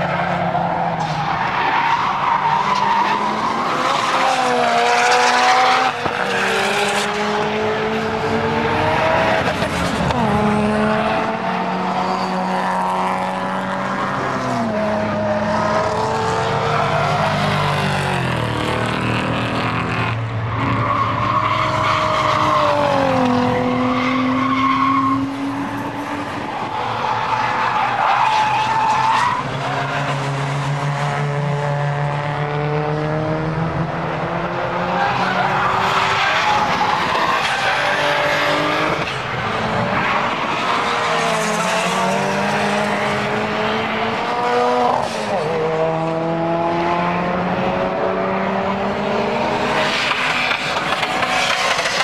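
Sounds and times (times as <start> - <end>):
tyres squealing and skidding: 0.0 - 7.9, 11.3 - 30.6, 34.8 - 45.6, 48.9 - 52.0
car engines revving hard: 0.0 - 52.0.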